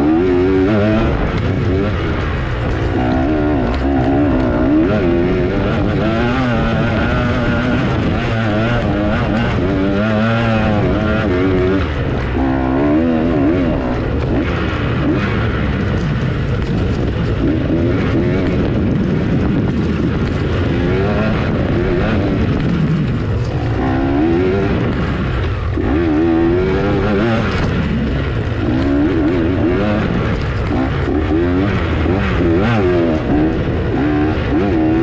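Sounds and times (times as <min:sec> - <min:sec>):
dirt bike engine revving: 0:00.0 - 0:35.0.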